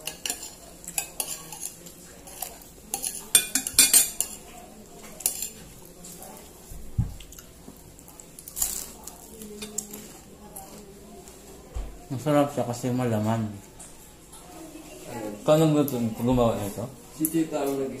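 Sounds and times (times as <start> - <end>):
tableware clinking and scraping: 0.0 - 6.2.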